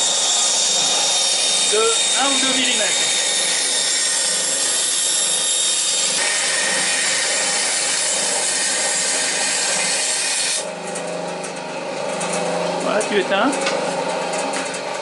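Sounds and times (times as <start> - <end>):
bandsaw blade hissing in cut: 0.0 - 10.7
bandsaw humming: 0.0 - 15.0.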